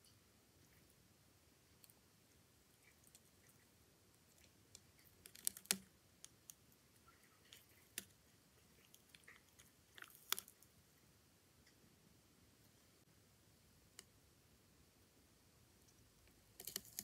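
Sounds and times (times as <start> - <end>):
faint crackling clicks: 2.8 - 10.7, 15.8 - 17.0.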